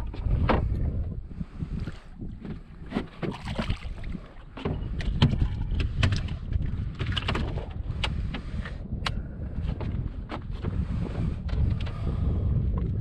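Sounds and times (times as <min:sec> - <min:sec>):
wind buffeting microphone: 0:00.0 - 0:13.0
water splashes: 0:01.8 - 0:04.7
fish flopping on deck: 0:01.9 - 0:08.7.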